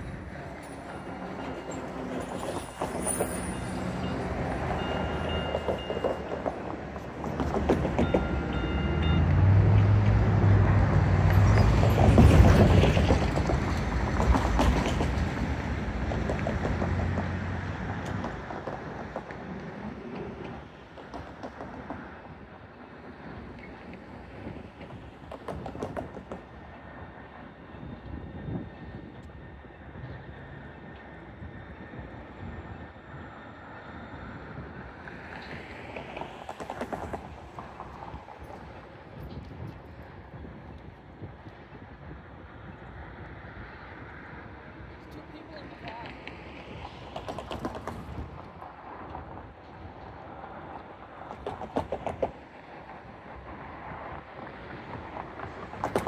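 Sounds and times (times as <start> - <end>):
rail noise: 0.0 - 56.0
train hum: 0.0 - 56.0
wind rumbling on microphone: 0.0 - 56.0.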